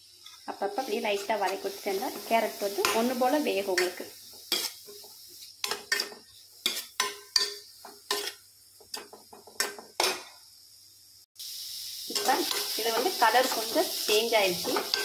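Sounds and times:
faint sizzle: 0:00.0 - 0:15.0
spatula scraping metal pan: 0:03.8 - 0:10.2.

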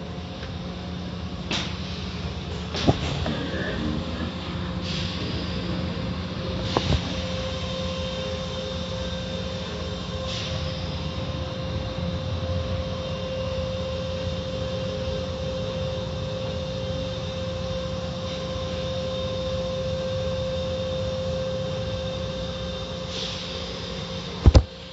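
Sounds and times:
car wash machinery whine: 0:00.0 - 0:24.9.

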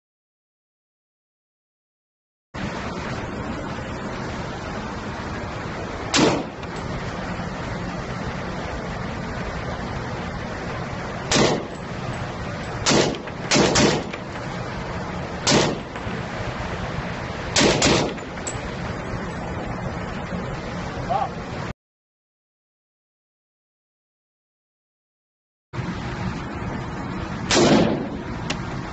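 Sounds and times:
steady background hiss: 0:02.6 - 0:21.7, 0:25.8 - 0:28.9
rifle shots indoors: 0:27.5 - 0:28.0.

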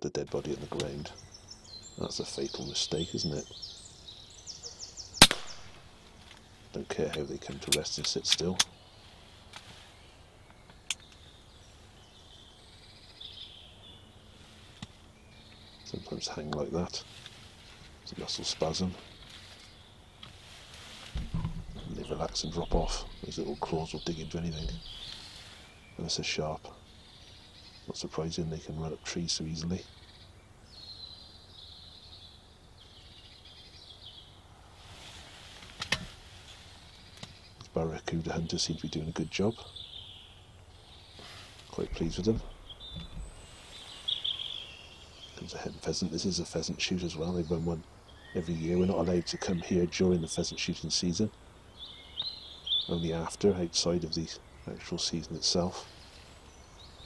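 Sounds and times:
faint bird calls: 0:00.0 - 0:57.0
air rifle shot crack: 0:05.2 - 0:05.9.

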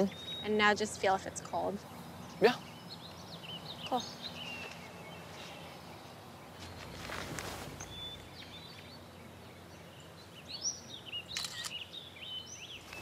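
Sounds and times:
small birds chirping: 0:00.0 - 0:13.0
soft outdoor hiss: 0:00.0 - 0:13.0
rustling swish: 0:06.6 - 0:08.3.

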